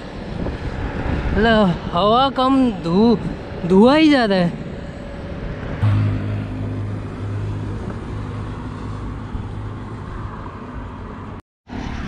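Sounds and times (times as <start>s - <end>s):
vehicle engine droning: 4.5s - 11.1s
tyre and road noise: 4.6s - 12.0s.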